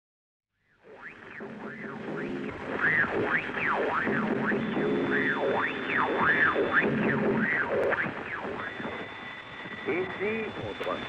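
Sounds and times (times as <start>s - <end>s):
radio hiss with warbling whistles: 0.7s - 11.0s
thin steady high tone: 8.4s - 11.0s.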